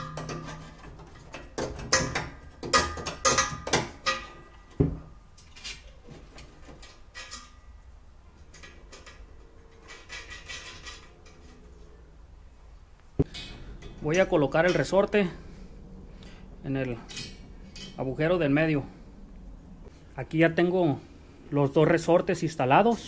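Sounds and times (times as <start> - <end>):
metal pieces clanking: 0.0 - 4.8, 8.4 - 11.6, 17.0 - 18.0.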